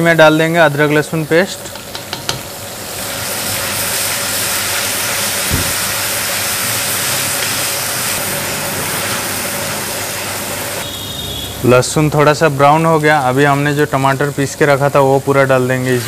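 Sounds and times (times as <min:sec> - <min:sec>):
garlic sizzling in hot oil: 0:00.0 - 0:16.0
short knock: 0:05.5 - 0:05.9.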